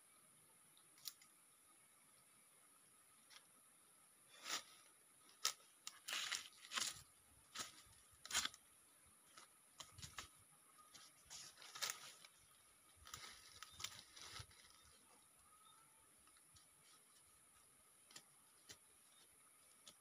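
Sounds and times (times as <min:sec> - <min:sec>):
footsteps on dry leaves: 0:05.4 - 0:08.6, 0:10.9 - 0:15.0
hands pressing soil: 0:18.0 - 0:20.0.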